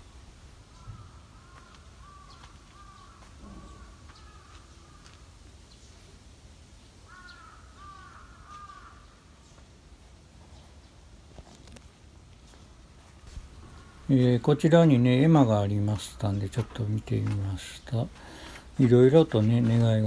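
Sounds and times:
crow cawing faintly: 0.6 - 5.4, 7.0 - 9.4, 13.1 - 20.0.

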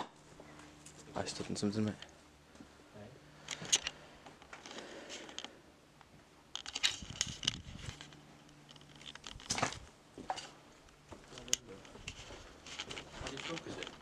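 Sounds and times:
footsteps crunching over leaves and twigs: 9.3 - 14.0.

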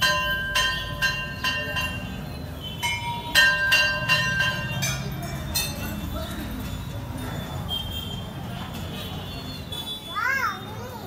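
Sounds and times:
temple bells clanging: 0.0 - 6.6
low background murmur: 0.1 - 11.0.

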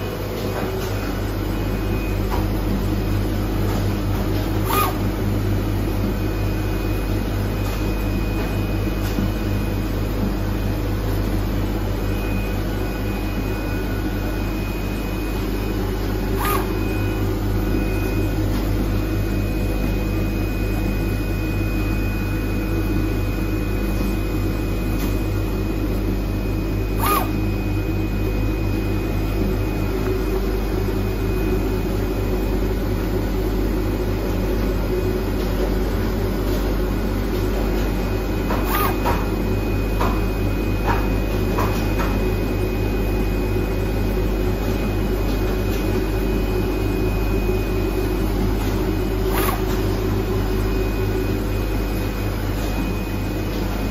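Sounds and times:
cutting machine hum: 0.0 - 8.4, 13.0 - 21.7, 25.5 - 32.3, 37.8 - 41.0, 47.2 - 53.9.

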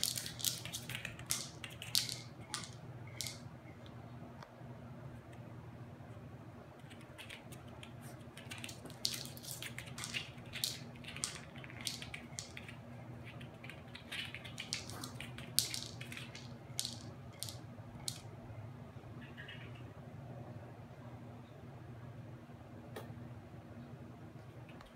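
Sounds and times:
dog crunching kibble: 0.0 - 3.4, 6.8 - 18.2
kibble rattling in plastic toy: 0.0 - 3.4, 8.3 - 18.3.

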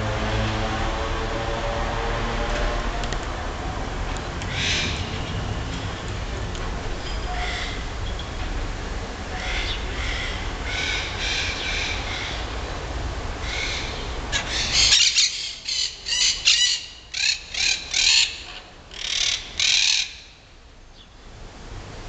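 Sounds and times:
low rumble: 0.0 - 8.1
parakeets squawking: 4.5 - 5.2, 13.4 - 20.2.

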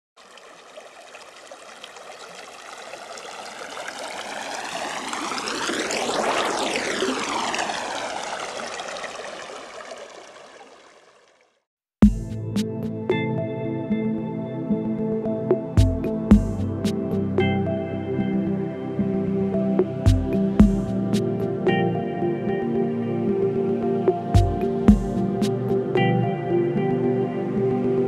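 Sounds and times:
rushing water: 0.2 - 11.7
sweeping whoosh: 4.3 - 8.8
music: 12.0 - 28.0.

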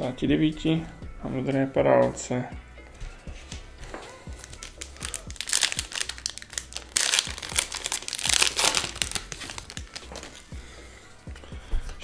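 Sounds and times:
card pack wrapper crinkling: 4.3 - 10.5.

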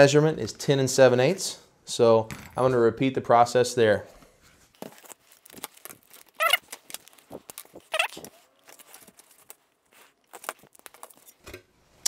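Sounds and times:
short squeaks: 6.3 - 6.7.

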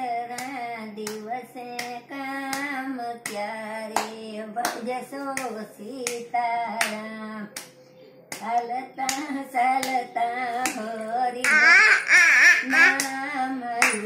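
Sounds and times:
rhythmic hand clapping: 0.2 - 14.0
singing steady notes: 7.5 - 14.0
child's high wavering voice: 11.4 - 13.1.

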